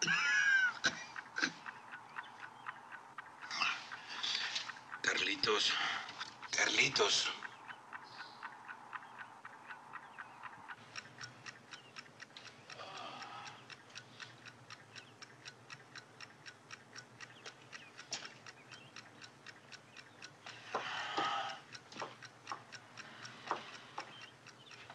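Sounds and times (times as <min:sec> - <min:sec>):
clock ticking: 0:00.0 - 0:24.9.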